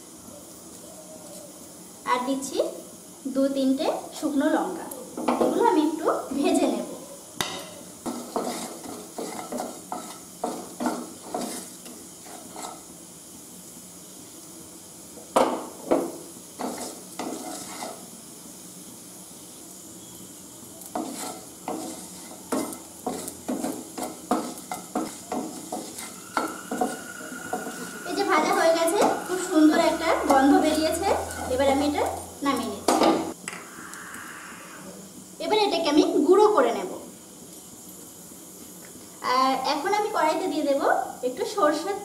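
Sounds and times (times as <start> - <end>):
faint steady hiss: 0.0 - 42.0
spatula scraping seeds in a wok: 7.6 - 13.8, 15.9 - 32.7
seeds rattling across a pan: 16.2 - 19.6, 20.3 - 32.7.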